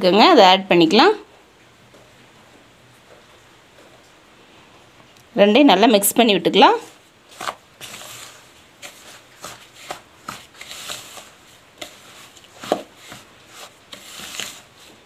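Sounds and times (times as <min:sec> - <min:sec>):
spoon scraping plastic bowl: 0:06.8 - 0:15.0.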